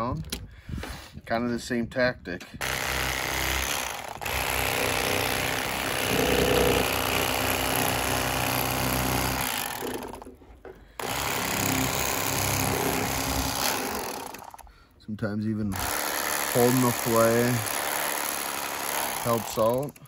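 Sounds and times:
blade cutting through bones: 0:02.6 - 0:10.3, 0:11.0 - 0:14.6
electric fillet knife buzzing: 0:02.6 - 0:10.3, 0:11.0 - 0:14.6.

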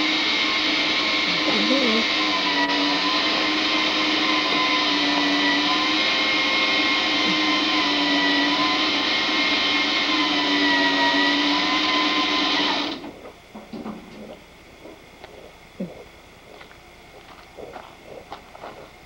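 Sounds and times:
small motor whining: 0:00.0 - 0:13.2.

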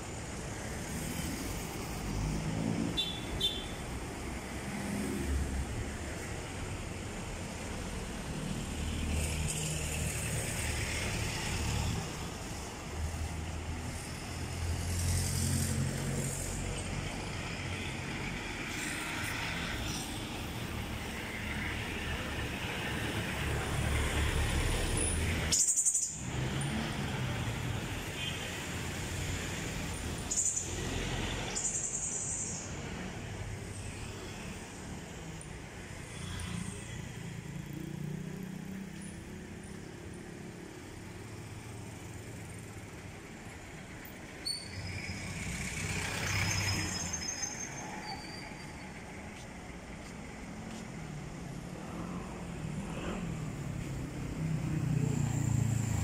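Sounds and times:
road noise: 0:00.0 - 0:56.0
car and motorcycle engines passing: 0:04.2 - 0:05.9, 0:08.0 - 0:25.6, 0:26.2 - 0:28.0, 0:32.5 - 0:48.0, 0:49.7 - 0:56.0.

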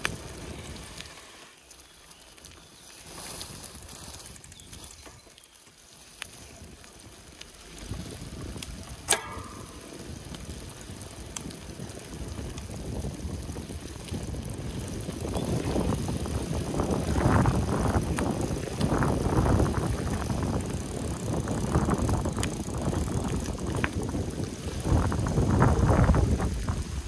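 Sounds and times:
bike tyres rolling: 0:00.0 - 0:27.0
wind: 0:00.0 - 0:27.0
faint ticks: 0:04.2 - 0:07.9, 0:08.5 - 0:12.8
sharp click: 0:09.0 - 0:09.9.

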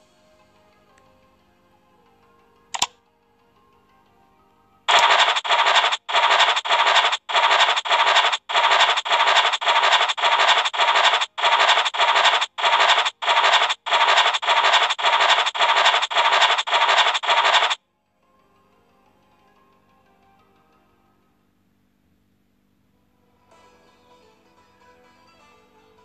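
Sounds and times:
scratch-card scraping effect: 0:04.9 - 0:17.8.

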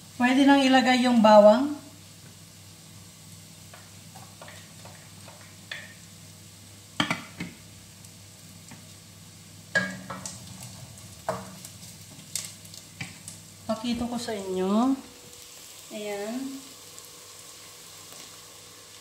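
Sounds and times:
food sizzling in oil: 0:00.0 - 0:19.0
wooden spatula knocking pot: 0:09.8 - 0:10.4.

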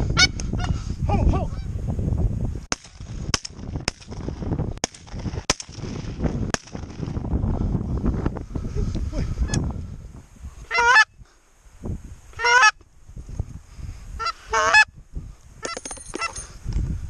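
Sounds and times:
goose honking: 0:10.7 - 0:11.1, 0:12.4 - 0:12.8, 0:14.2 - 0:14.9.

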